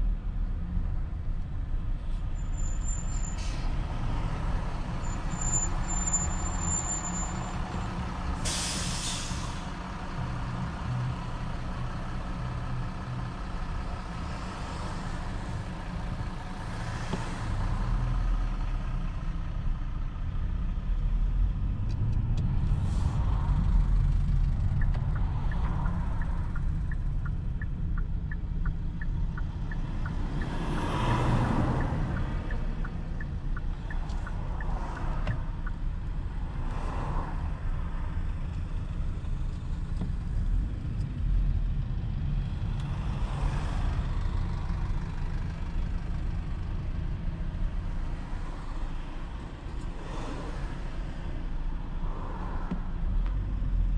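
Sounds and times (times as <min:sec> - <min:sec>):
car engine and tyre rumble: 0:00.0 - 0:53.9.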